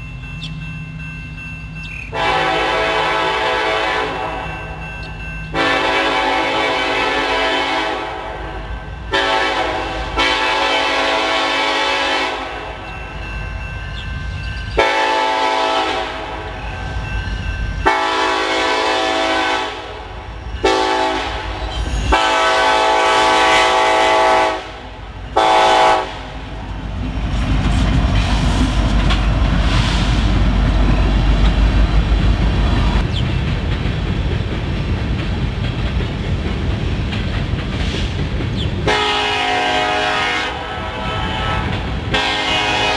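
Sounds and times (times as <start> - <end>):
locomotive engines rumbling: 0.0 - 42.9
wheels clacking on rails: 0.0 - 42.9
locomotive air horn blasts: 2.1 - 4.6, 5.5 - 12.8, 14.8 - 16.6, 17.8 - 26.5, 38.8 - 42.9.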